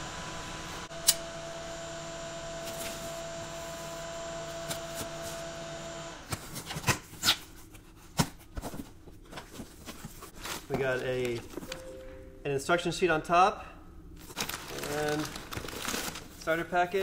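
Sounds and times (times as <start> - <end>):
steady background hum: 6.2 - 17.0
cardboard scraping: 14.2 - 16.6.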